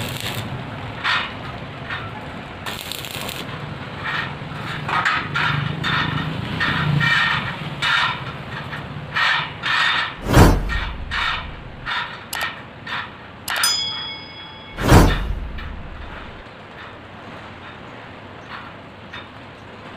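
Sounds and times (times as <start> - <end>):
heavy thump: 10.2 - 11.9, 14.7 - 16.4
struck metal ringing: 10.2 - 11.9, 13.5 - 16.4
steel bars clinking: 13.5 - 16.4.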